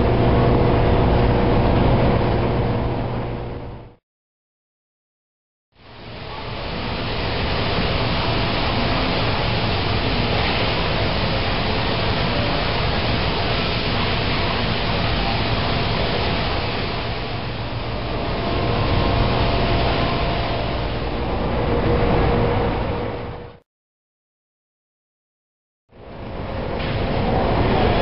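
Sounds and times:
faint hum: 0.0 - 4.0, 5.8 - 23.6
steady rushing noise: 5.8 - 23.6, 26.0 - 28.0.

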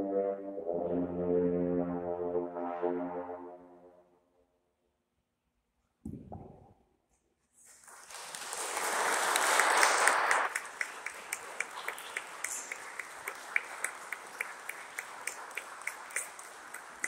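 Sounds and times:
audience applauding: 7.9 - 17.0.

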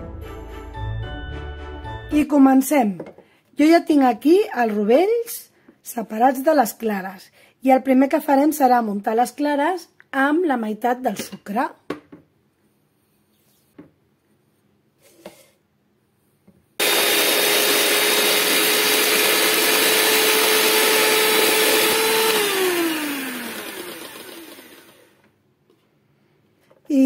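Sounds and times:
electric hand mixer whirring: 16.8 - 25.3.

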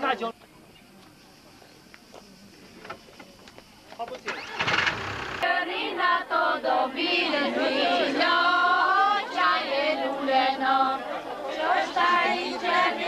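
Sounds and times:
women singing unaccompanied: 5.4 - 13.0.

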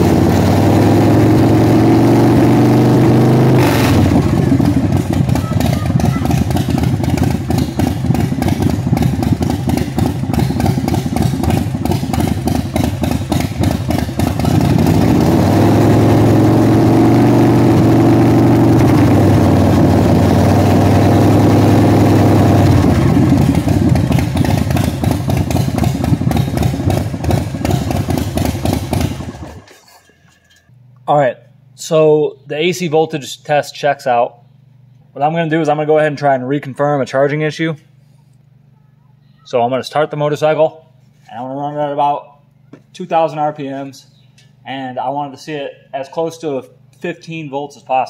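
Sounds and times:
motorcycle engine idling and revving: 0.0 - 30.9.

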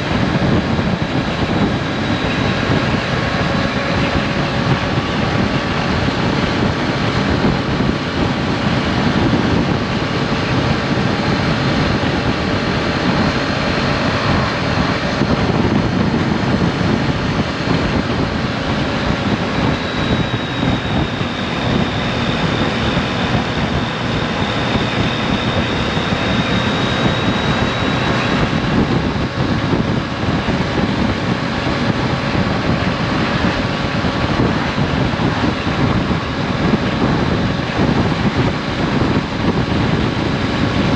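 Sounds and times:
motorcycle engine droning: 0.0 - 40.9
thin high whine: 0.0 - 40.9
wind rush over microphone: 0.0 - 40.9.

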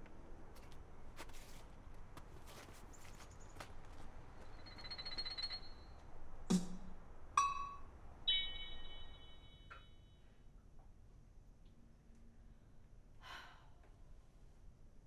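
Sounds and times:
bell-like chime tones: 7.4 - 10.2.

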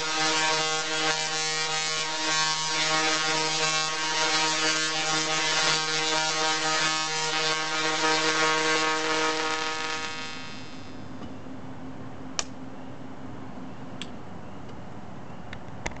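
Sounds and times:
tesla coil arcs buzzing: 0.0 - 11.2.

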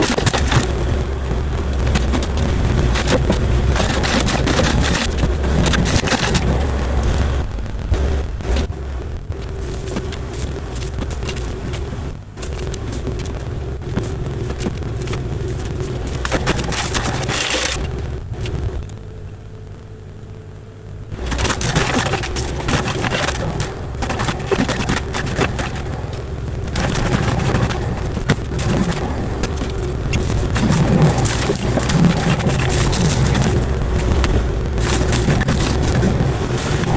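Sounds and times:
mulcher shredding brush: 0.0 - 8.7, 9.4 - 17.9, 21.2 - 36.9
excavator diesel engine: 0.0 - 19.0
wood crackling and snapping: 0.0 - 36.9.

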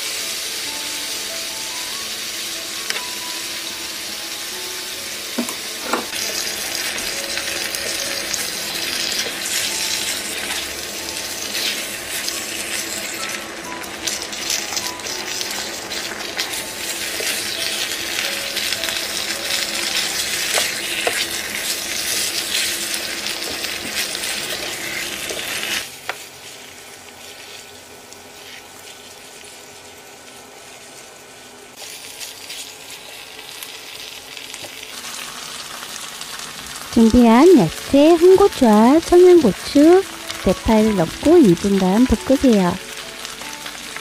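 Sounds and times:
meat sizzling on a griddle: 0.0 - 44.0
spatula stirring: 19.6 - 25.8.

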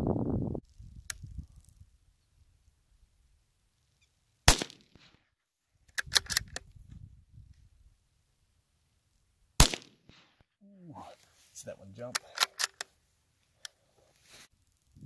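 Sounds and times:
rifle shot: 4.5 - 5.2, 9.6 - 10.4
rifle bolt clicks: 5.9 - 6.6, 12.1 - 12.9.

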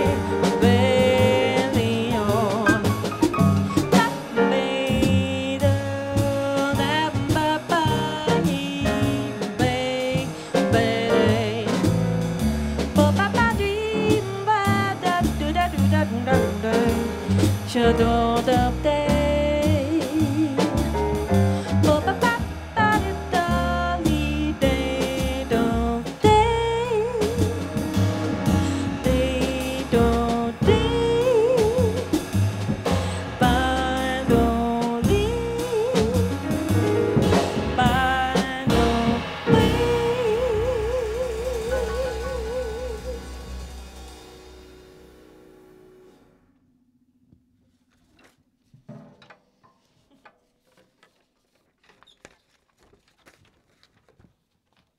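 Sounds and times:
woman singing wordless melody: 0.0 - 3.2, 3.9 - 11.9, 13.0 - 20.9, 21.8 - 27.8, 28.6 - 32.3, 33.1 - 36.7, 37.8 - 43.4
drum kit with cymbals: 0.0 - 45.3
plucked double bass: 0.0 - 45.4.

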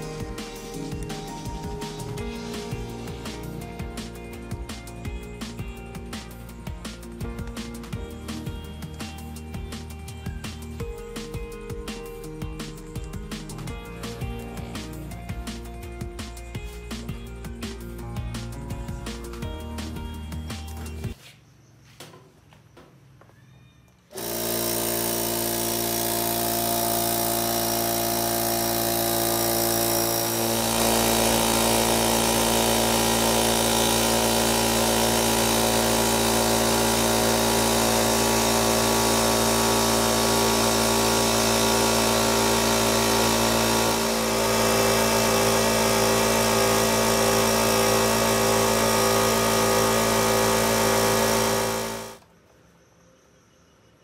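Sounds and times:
air compressor running: 0.0 - 21.1, 24.1 - 52.2.

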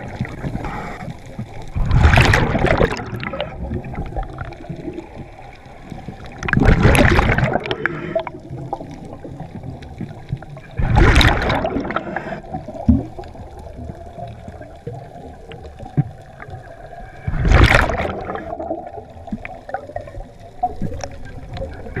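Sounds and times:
underwater hiss: 0.0 - 6.5, 7.2 - 9.5, 10.6 - 13.7
underwater breath bubbles gurgling: 0.0 - 22.0
faint clicking: 3.4 - 6.7, 7.5 - 10.8, 11.8 - 17.3, 18.9 - 22.0.

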